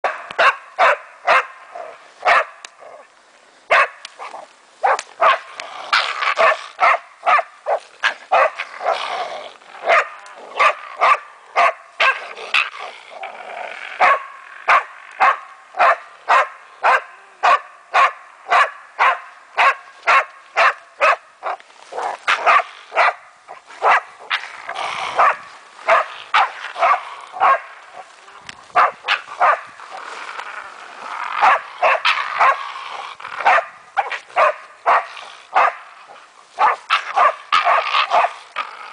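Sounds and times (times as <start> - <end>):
dog barking sharply: 3.7 - 4.0.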